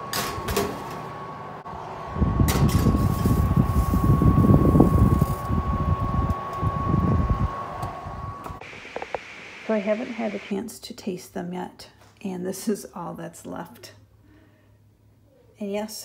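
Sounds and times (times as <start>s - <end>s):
steady high tone: 8.6s - 10.6s.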